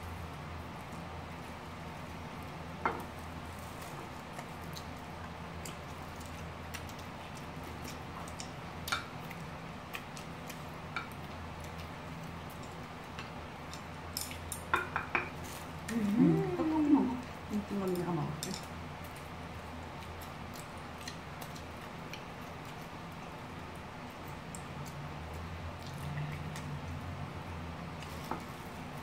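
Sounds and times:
steady low hum: 0.0 - 29.0
soft chewing: 0.1 - 29.0.

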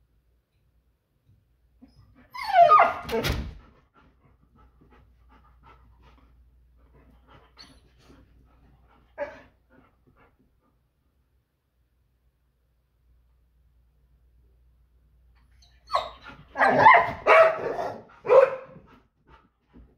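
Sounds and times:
dog whining: 1.8 - 3.2, 15.5 - 18.0
dog panting: 3.6 - 10.9, 18.1 - 19.9.

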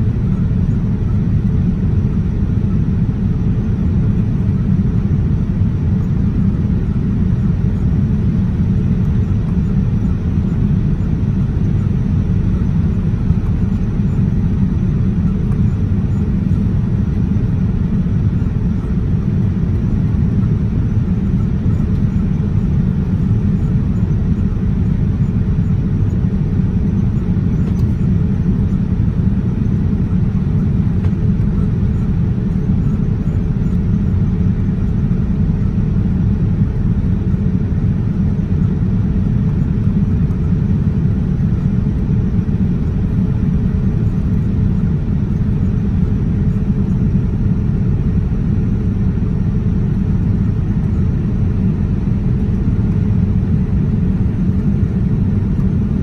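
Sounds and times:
jet engines and airflow rumble in cabin: 0.0 - 56.0.

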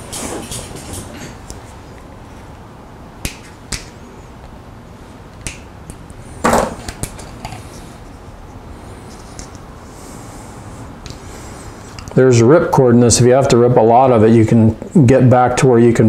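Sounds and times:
tools tapping on workbench: 6.4 - 6.9.

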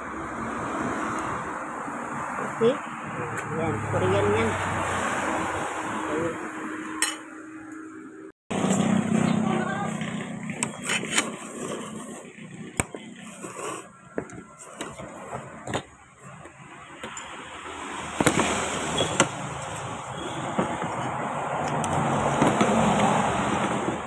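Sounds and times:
person slurping noodles: 11.1 - 15.5.

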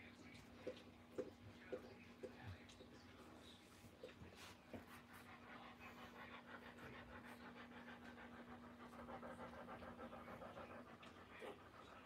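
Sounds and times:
dog panting quickly: 3.8 - 12.0.

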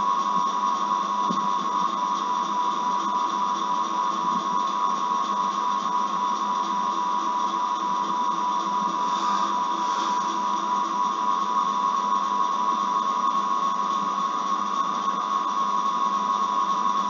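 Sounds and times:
constant high whine: 0.0 - 17.0
faint regular pulsing: 8.6 - 11.0.

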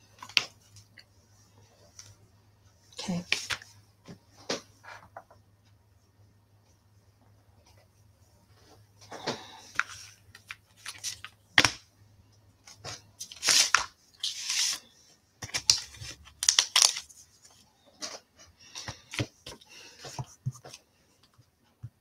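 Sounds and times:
plastic packaging crinkling: 15.5 - 17.1.

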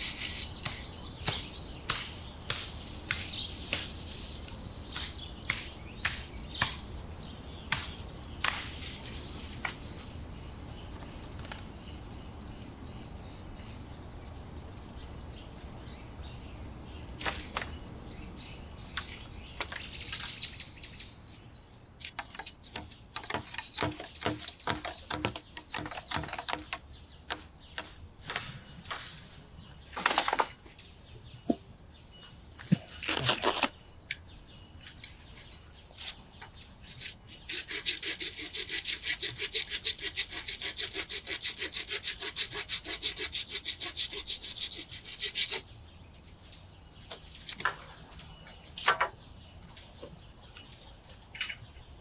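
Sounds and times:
branches rustling and scraping: 29.1 - 37.4
hand saw cutting wood: 37.5 - 45.7.

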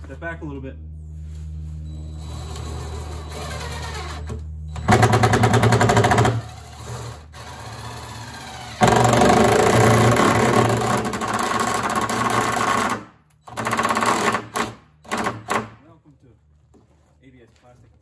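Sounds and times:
power drill rattling chatter: 2.2 - 16.0.

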